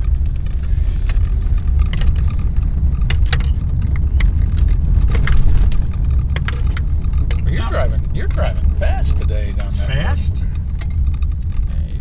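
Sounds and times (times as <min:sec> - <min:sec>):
light clicks and rattles: 0:00.0 - 0:07.5, 0:10.4 - 0:12.0
car engine and tyre rumble: 0:00.0 - 0:12.0.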